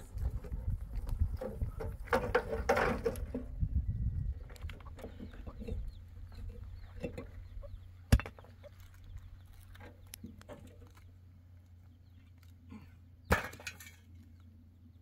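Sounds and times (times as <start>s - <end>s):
rocks unloaded from wheelbarrow: 0.0s - 3.7s
chickens clucking: 0.2s - 11.1s.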